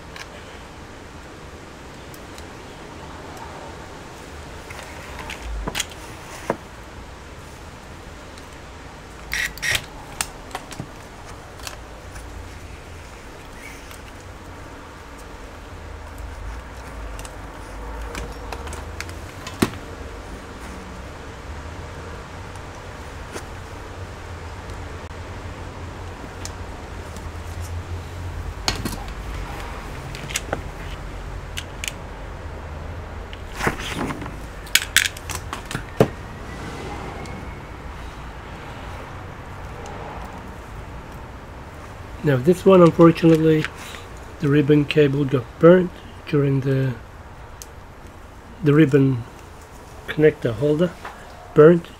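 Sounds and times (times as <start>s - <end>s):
cables being handled: 8.3s - 20.8s, 33.3s - 36.2s.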